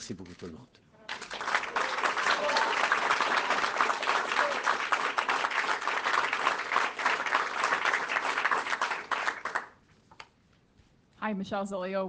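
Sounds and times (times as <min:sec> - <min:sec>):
crowd applauding: 0:01.0 - 0:09.8.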